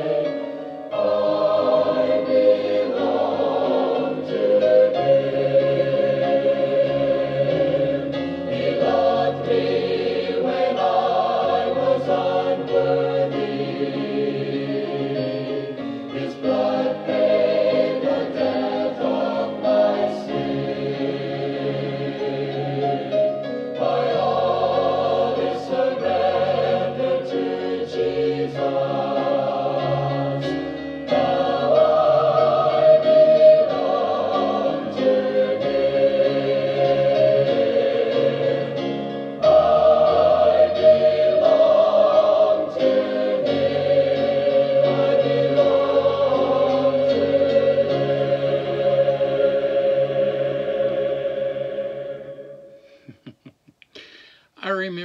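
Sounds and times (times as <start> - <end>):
choir singing: 0.0 - 53.0
piano accompaniment: 0.0 - 53.0.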